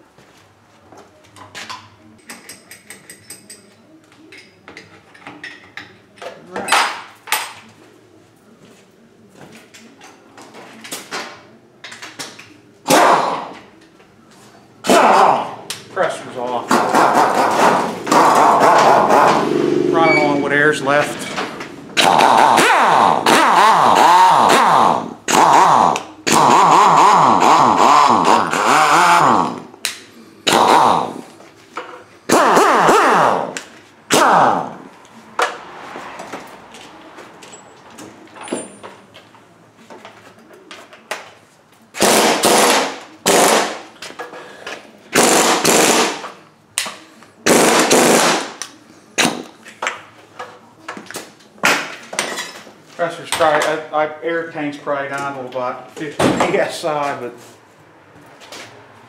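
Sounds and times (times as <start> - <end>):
air impact wrench running: 16.9 - 29.7, 30.4 - 31.2, 32.3 - 34.8, 42.0 - 43.8, 45.1 - 46.3, 47.4 - 48.6.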